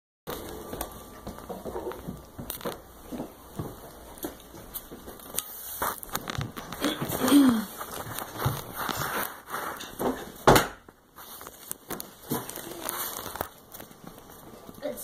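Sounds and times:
plastic packaging crinkling: 0:04.4 - 0:09.9, 0:11.1 - 0:14.8.

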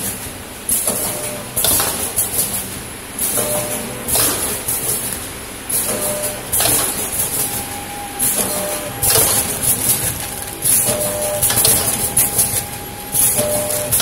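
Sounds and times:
packing machine hissing and clattering: 0:00.0 - 0:14.0.

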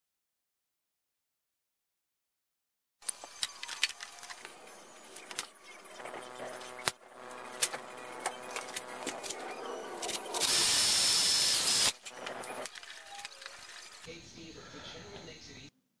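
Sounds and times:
power drill whining: 0:03.0 - 0:14.1.

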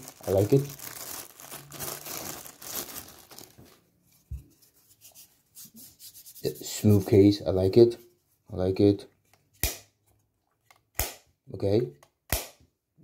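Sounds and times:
plastic bag crinkling: 0:00.0 - 0:03.9.

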